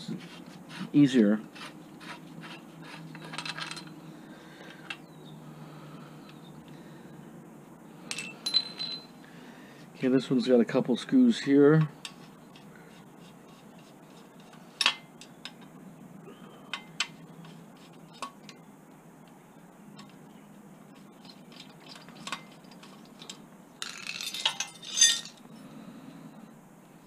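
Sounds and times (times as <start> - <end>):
metal clinks and taps: 8.1 - 9.1.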